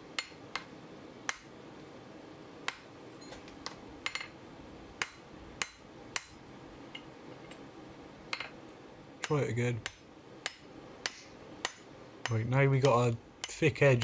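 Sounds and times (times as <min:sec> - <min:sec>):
steady low hum: 0:00.0 - 0:14.0
hammer striking hot steel on anvil: 0:00.2 - 0:00.7, 0:05.0 - 0:06.4, 0:09.2 - 0:14.0.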